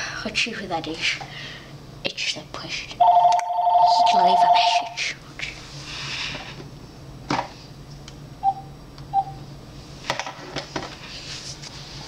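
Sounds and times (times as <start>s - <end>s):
mobile phone beeps: 3.0s - 4.9s.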